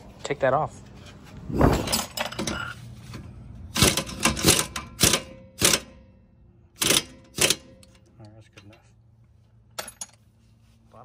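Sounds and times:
metal tools clanking on metal: 0.8 - 5.8, 6.8 - 8.9, 9.7 - 10.3.

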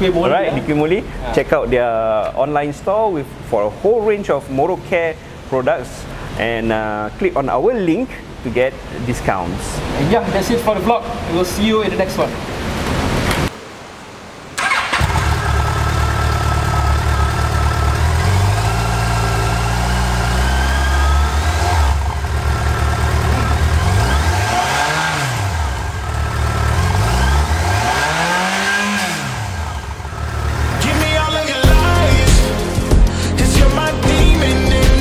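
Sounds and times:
motorcycle engine idling and revving: 14.6 - 32.2.

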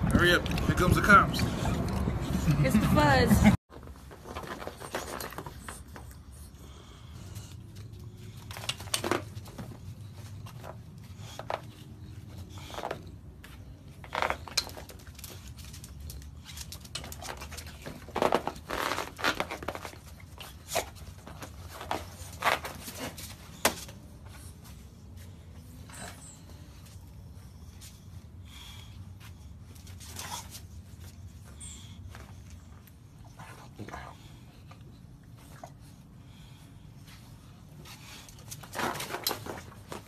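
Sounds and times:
dogs scuffling on fabric cots: 13.5 - 26.2.

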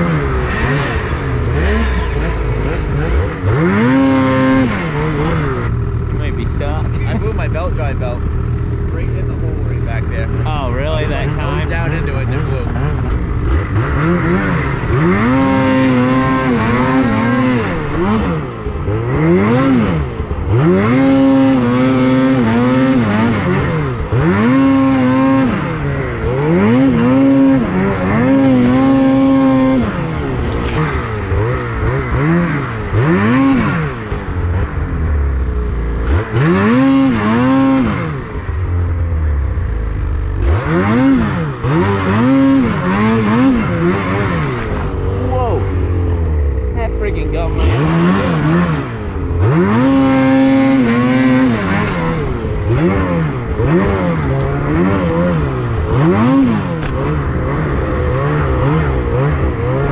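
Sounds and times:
steady rushing noise: 0.0 - 40.7
snowmobile engine revving: 0.0 - 59.9.

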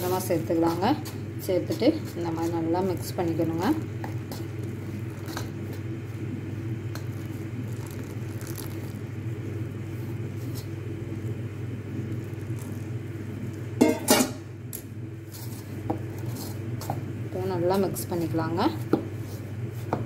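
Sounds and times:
spoon mixing in ceramic bowl: 0.0 - 6.0
low mechanical hum: 0.0 - 20.0
spoon scraping bowl: 1.0 - 5.9.

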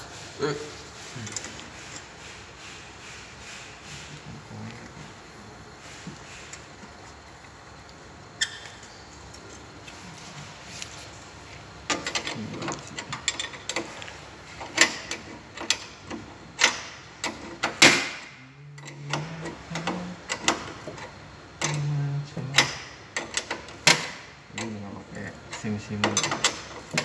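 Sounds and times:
wrench clicking on bolt: 14.6 - 18.2, 18.8 - 21.9, 22.5 - 24.8, 25.5 - 27.0.

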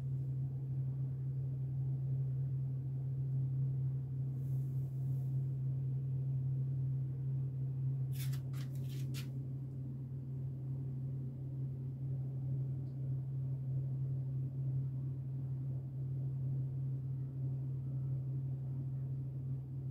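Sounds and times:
steady low motor hum: 0.0 - 19.9
short scratchy rustles: 8.1 - 9.3.

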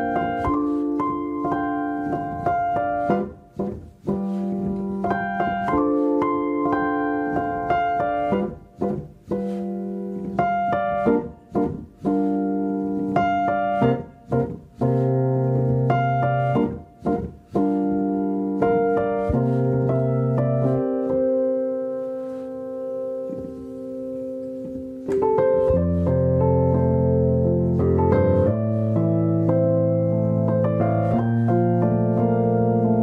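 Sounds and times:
piano chords: 0.0 - 33.0.

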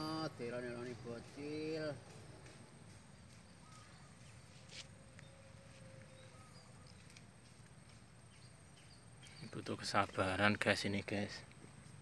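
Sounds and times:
faint bird chirps: 3.0 - 11.3.

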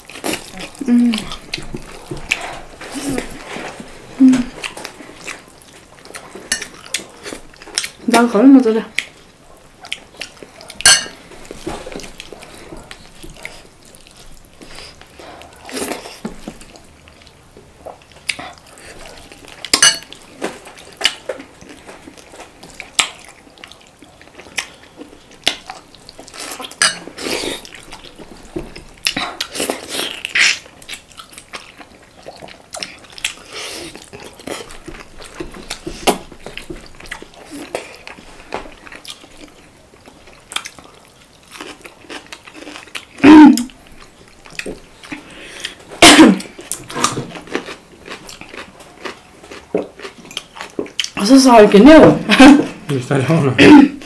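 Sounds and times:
chewing: 0.0 - 8.2, 8.9 - 51.2
cutlery clinking on plate: 10.8 - 11.2, 19.7 - 20.1, 26.8 - 27.1.

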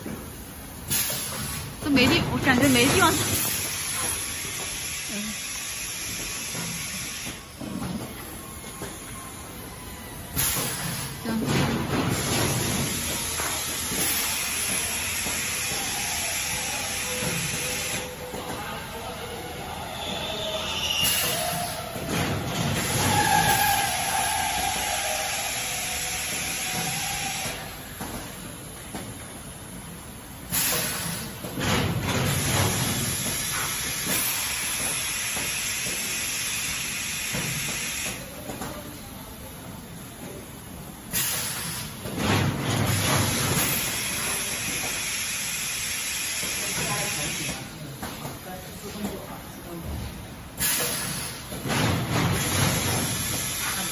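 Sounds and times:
air hissing: 0.8 - 1.8, 2.7 - 7.6, 10.3 - 29.0, 30.4 - 31.6, 32.2 - 38.4, 41.1 - 42.1, 43.0 - 47.7, 50.6 - 53.9
packaging machinery running: 0.8 - 8.9, 10.3 - 38.8, 41.1 - 47.9, 50.6 - 53.9.

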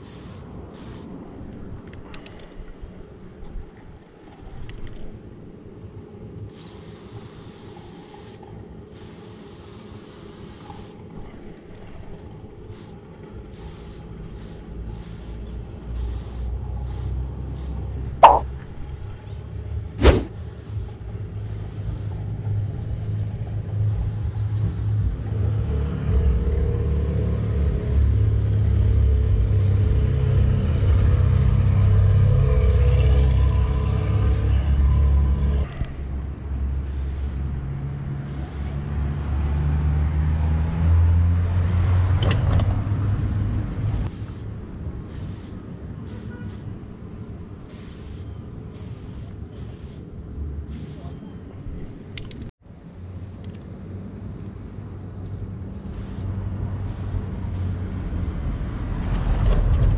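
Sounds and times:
spray paint hissing: 0.0 - 1.2, 6.5 - 11.1, 12.6 - 18.5, 20.0 - 22.4, 23.8 - 26.2, 26.8 - 35.5, 36.8 - 40.0, 41.6 - 46.8, 47.6 - 51.2, 54.4 - 59.9
low rumble: 22.4 - 36.8.

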